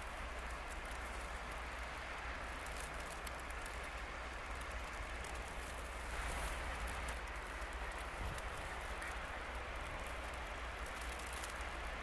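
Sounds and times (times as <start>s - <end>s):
wind and driving sleet: 0.0s - 12.0s
wind buffeting microphone: 5.9s - 12.0s.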